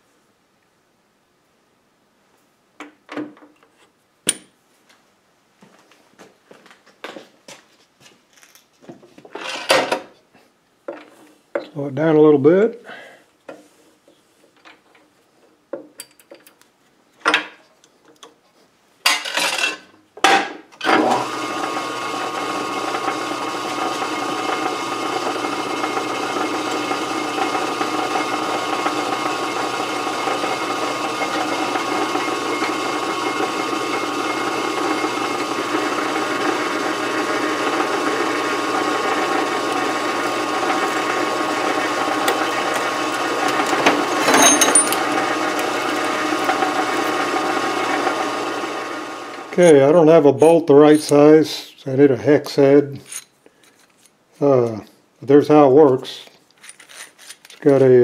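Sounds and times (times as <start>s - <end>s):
metal lathe running with gear whine: 20.8s - 49.6s
cutoff tool cutting metal: 22.7s - 47.3s
lathe gear clunks: 42.0s - 47.2s.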